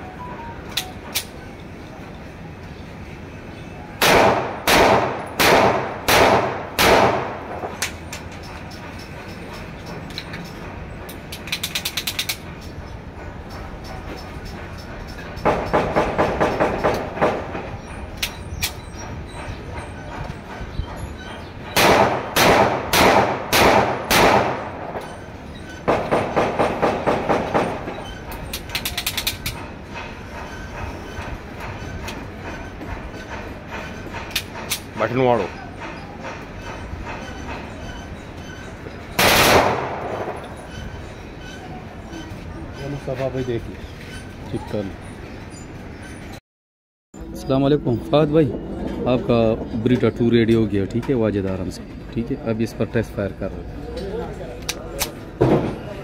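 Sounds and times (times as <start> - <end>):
pistol shots: 4.0 - 7.4, 21.8 - 24.8, 39.2 - 40.4
small metallic clicks: 7.8 - 12.8, 28.3 - 29.7.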